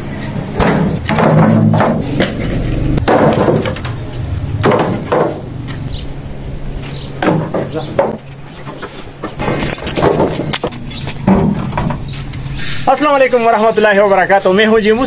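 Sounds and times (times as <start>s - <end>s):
firewood branches knocking together: 3.0s - 4.0s.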